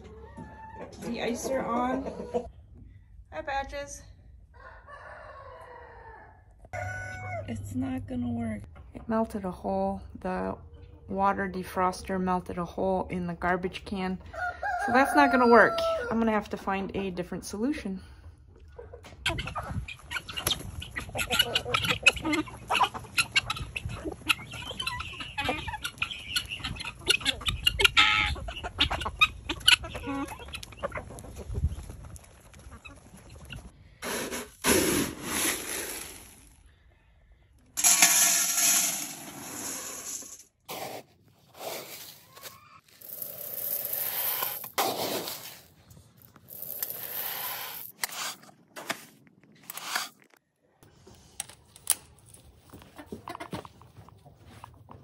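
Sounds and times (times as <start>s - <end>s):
chickens clucking: 0.0s - 2.6s, 18.3s - 33.8s, 52.6s - 55.0s
feed poured into a bucket: 37.8s - 40.4s, 46.5s - 47.9s.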